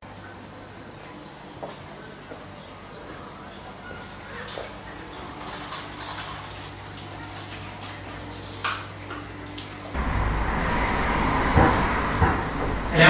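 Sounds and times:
aquarium filter pump humming: 0.0s - 13.0s
water trickling: 0.0s - 13.0s
loud rushing noise: 10.0s - 13.0s.

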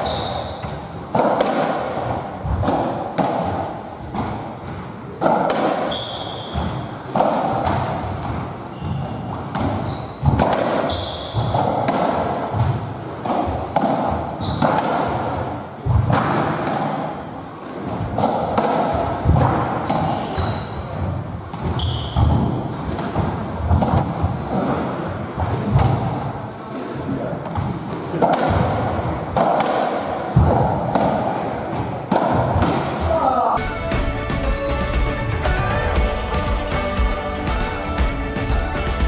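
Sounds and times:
shoes squeaking on wooden floor: 0.0s - 1.4s, 5.4s - 11.7s, 13.0s - 14.8s, 19.8s - 22.6s, 23.7s - 24.8s.

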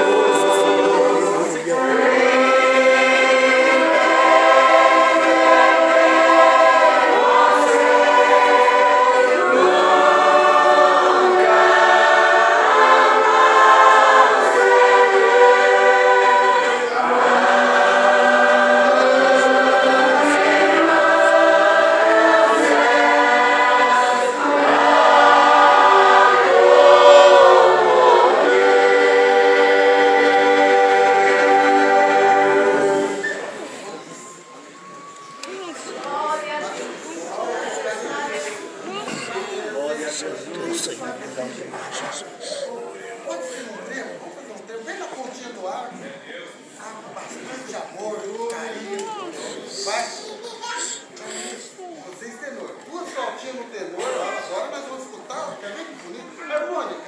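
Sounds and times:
choir singing a hymn: 0.0s - 43.0s
saxophones and clarinets playing: 1.8s - 34.0s.

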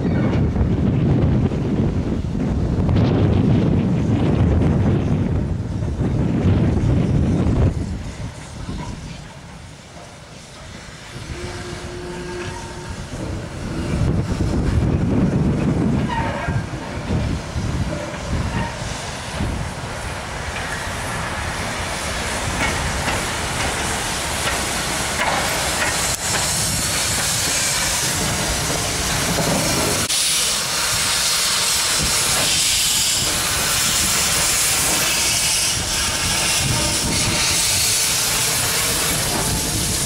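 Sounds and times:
wheels rumbling on rail: 0.0s - 40.0s
locomotive steam hissing: 5.0s - 40.0s.

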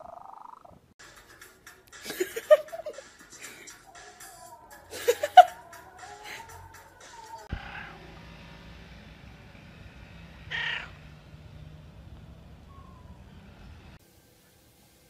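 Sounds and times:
cat meowing: 5.6s - 8.1s, 10.5s - 11.0s.

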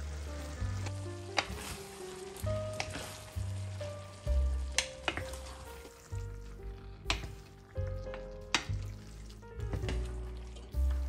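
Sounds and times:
background music: 0.0s - 11.0s
sauce sizzling in a frying pan: 0.0s - 11.0s
wooden spoons tossing spaghetti: 0.0s - 11.0s
spoon knocking on pan: 4.7s - 5.4s.

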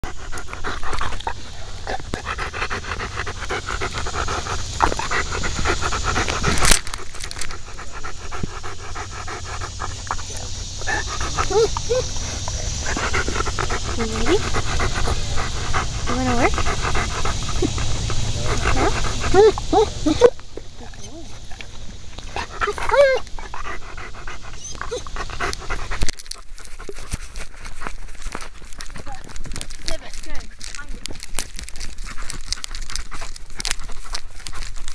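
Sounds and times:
dog panting: 0.0s - 34.9s
dog whining: 9.2s - 21.6s, 22.3s - 25.5s.

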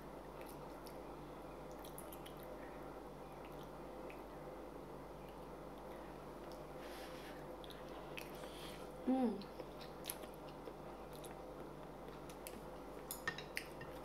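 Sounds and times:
person humming: 9.0s - 9.5s
person chewing food: 9.4s - 12.6s.

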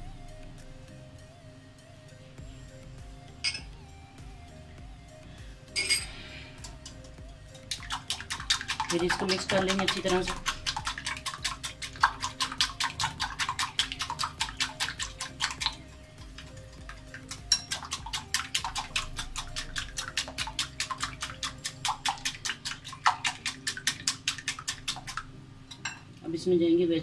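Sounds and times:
whisk beating batter in glass bowl: 7.6s - 25.3s.

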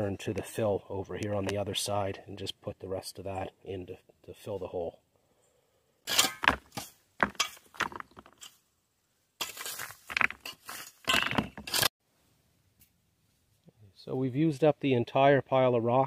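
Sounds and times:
rake scraping through dirt: 9.4s - 11.9s.

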